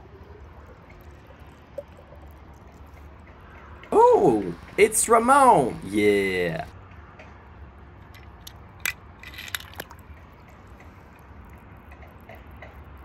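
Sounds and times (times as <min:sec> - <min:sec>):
toy car plopping into water: 0:08.8 - 0:10.0.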